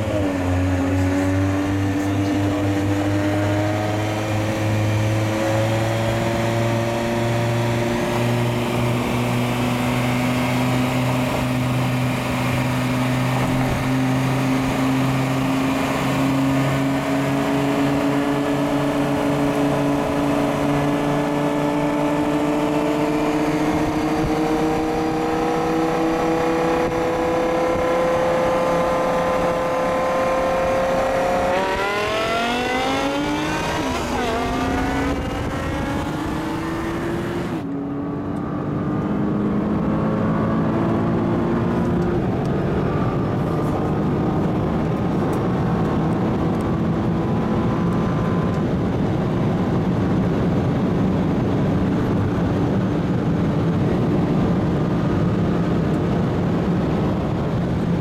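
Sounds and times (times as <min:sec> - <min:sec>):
car engines rolling slowly: 0:00.0 - 0:58.0.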